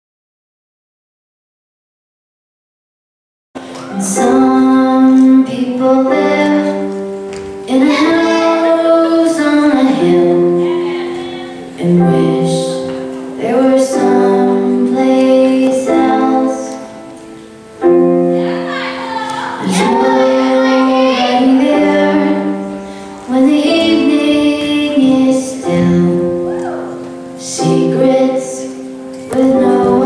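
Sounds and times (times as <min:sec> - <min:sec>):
woman singing a song: 0:04.0 - 0:17.0, 0:18.4 - 0:26.7, 0:27.4 - 0:30.0.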